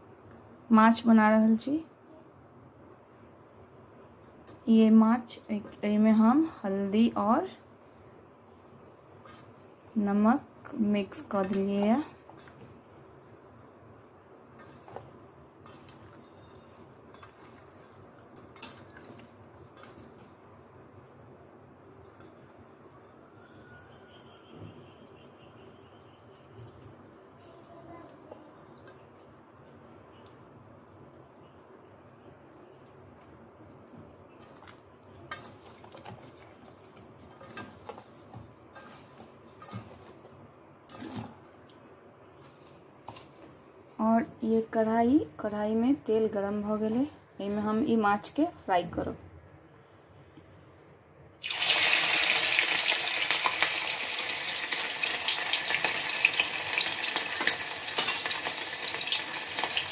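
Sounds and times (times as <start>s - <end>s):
soft squishing of fish: 7.5s - 44.0s.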